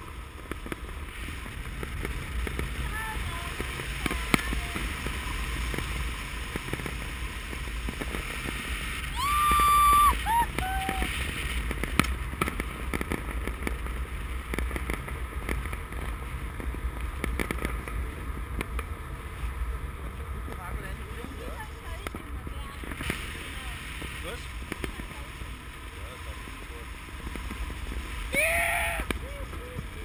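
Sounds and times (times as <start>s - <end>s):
wind rushing over microphone: 0.0s - 30.0s
person whooping: 9.1s - 11.1s, 28.3s - 29.2s.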